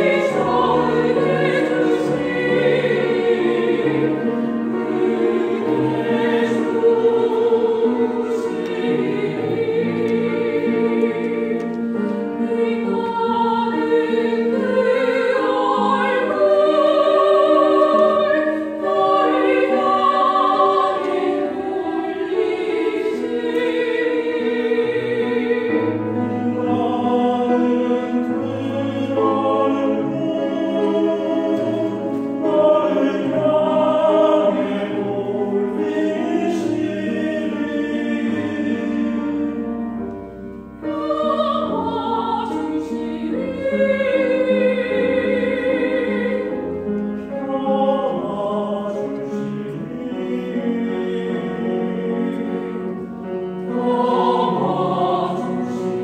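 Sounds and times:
choir singing: 0.0s - 56.0s
grand piano accompaniment: 0.0s - 56.0s.

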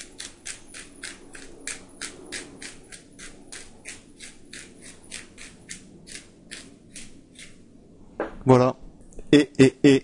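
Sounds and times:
pepper mill grinding: 0.0s - 7.5s.

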